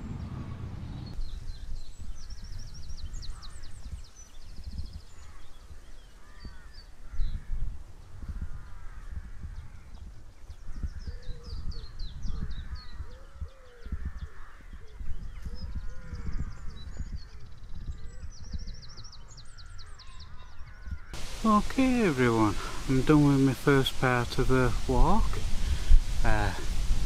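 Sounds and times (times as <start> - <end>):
low uneven rumble: 0.0 - 1.2, 21.2 - 27.0
harsh bird calls: 0.0 - 10.0, 10.6 - 27.0.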